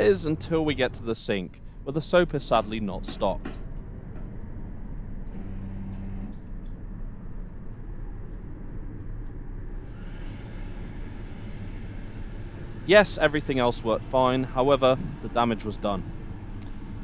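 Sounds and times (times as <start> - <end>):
train running rumble: 0.0 - 17.0
brief hum: 5.1 - 8.2.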